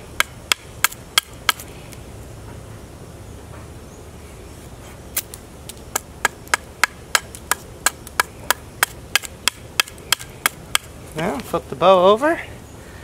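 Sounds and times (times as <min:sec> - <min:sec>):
knife chopping wood: 0:00.2 - 0:01.7, 0:05.9 - 0:11.4.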